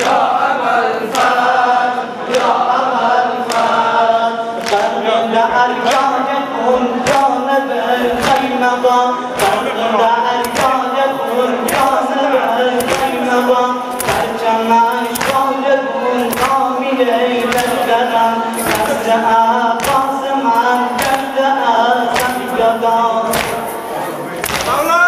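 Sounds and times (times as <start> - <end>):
men chanting a lament: 0.0 - 25.0
hand slaps on chest: 10.4 - 10.8, 12.8 - 13.2, 13.9 - 14.3, 15.1 - 15.5, 16.3 - 16.6, 19.8 - 20.1, 21.0 - 21.3, 23.3 - 23.7, 24.4 - 24.8.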